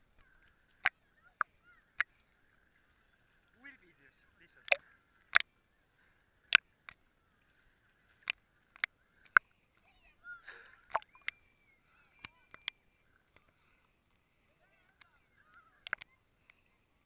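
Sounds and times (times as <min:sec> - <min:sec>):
ripples lapping against camera housing: 0:00.0 - 0:05.5, 0:08.2 - 0:11.4, 0:12.0 - 0:16.8
water sloshing: 0:00.0 - 0:17.0.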